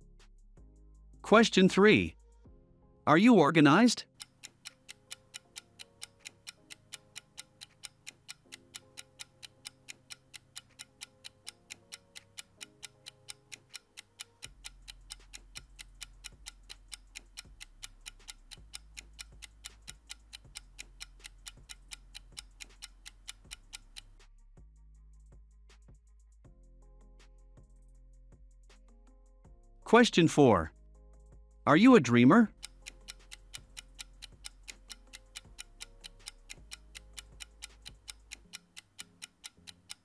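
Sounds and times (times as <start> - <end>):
soft background music: 0.0 - 40.0
clock-like ticking: 4.1 - 24.2, 32.5 - 40.0.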